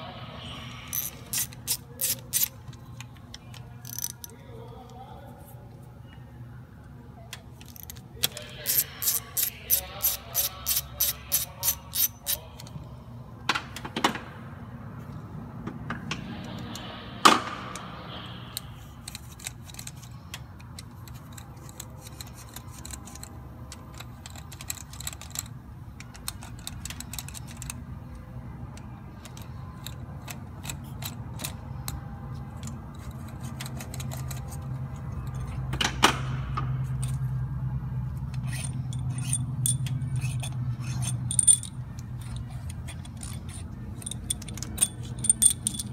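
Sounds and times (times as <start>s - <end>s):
low steady hum: 0.0s - 45.9s
ratchet clicking: 0.9s - 2.6s, 3.8s - 4.3s, 7.6s - 12.7s, 18.6s - 27.8s, 38.2s - 45.9s
metallic tool clinks and taps: 38.5s - 45.9s.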